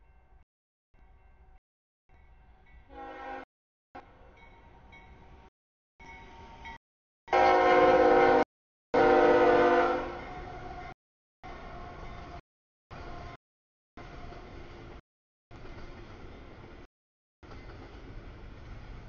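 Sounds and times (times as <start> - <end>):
locomotive air horn blasts: 2.9 - 3.5, 7.3 - 8.4, 9.0 - 10.8.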